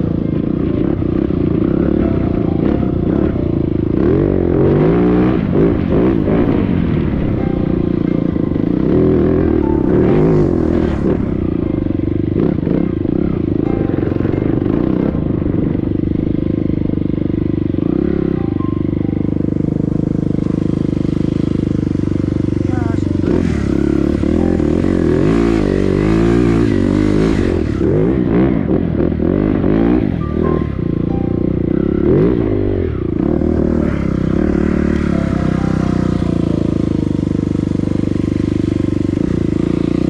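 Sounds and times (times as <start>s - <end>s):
dirt bike engine revving: 0.0s - 40.0s.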